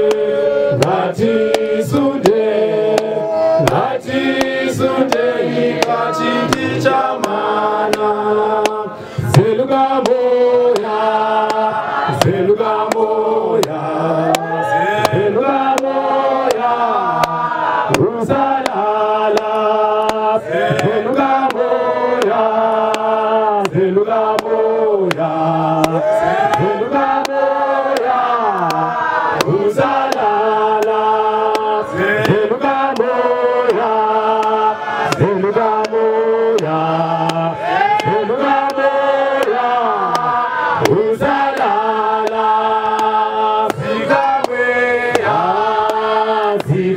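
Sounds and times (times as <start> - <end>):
congregation singing in parts: 0.0 - 46.9
sharp steady beats: 0.0 - 46.9.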